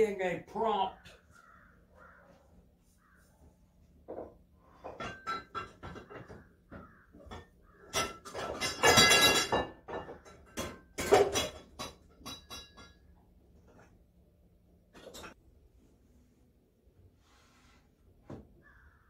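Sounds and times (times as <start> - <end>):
metal parts clinking and knocking: 7.2 - 13.1
metal parts clattering: 7.9 - 13.0.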